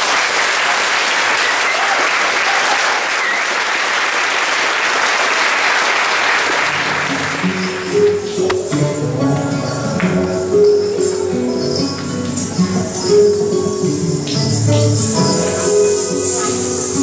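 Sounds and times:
audience applauding: 0.0 - 8.3
music: 6.4 - 17.0.

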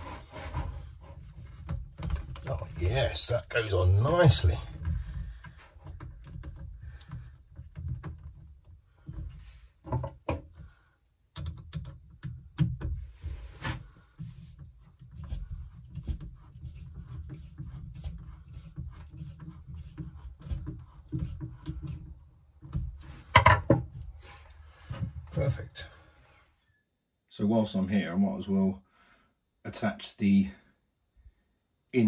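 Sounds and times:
small clicks and taps: 11.3 - 13.0.

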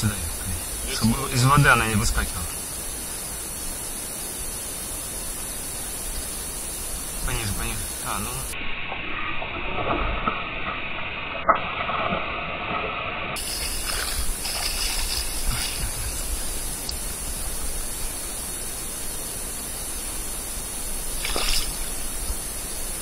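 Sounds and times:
steady hiss: 0.0 - 9.5, 13.4 - 23.0
fish splashing in water: 13.4 - 16.9, 21.1 - 22.3.

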